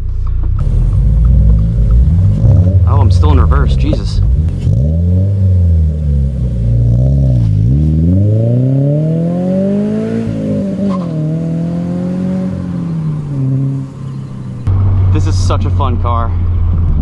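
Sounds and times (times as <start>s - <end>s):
car engine accelerating: 0.0s - 15.8s.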